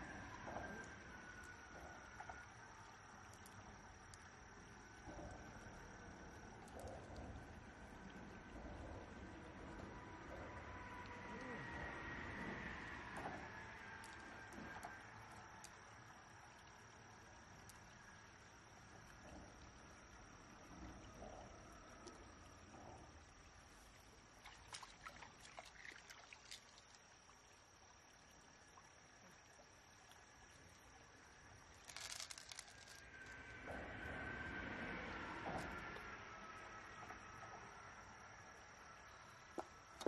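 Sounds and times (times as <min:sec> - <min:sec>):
water trickling: 0:00.0 - 0:33.6
insect drone: 0:00.0 - 0:40.0.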